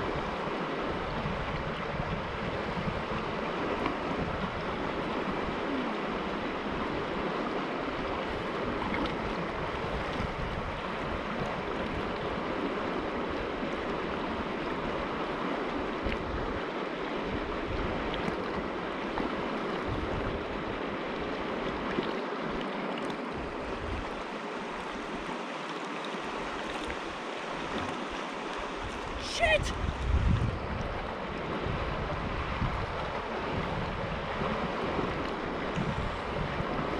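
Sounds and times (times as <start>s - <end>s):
wind buffeting microphone: 0.0s - 7.3s, 7.9s - 12.5s, 19.8s - 20.8s, 28.7s - 36.9s
creek running over rocks: 0.0s - 36.9s.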